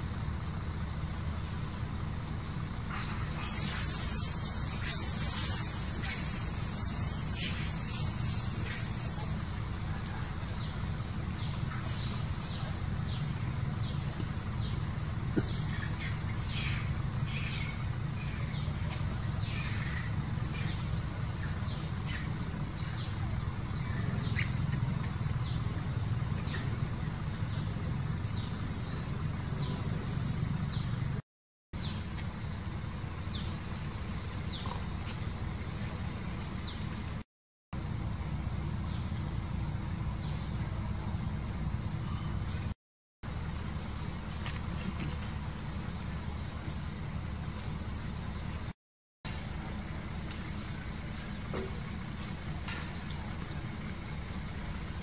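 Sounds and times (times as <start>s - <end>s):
birds chirping: 2.8s - 31.2s, 31.8s - 37.2s
high hiss: 2.9s - 9.5s
steady low rumble: 37.8s - 55.0s.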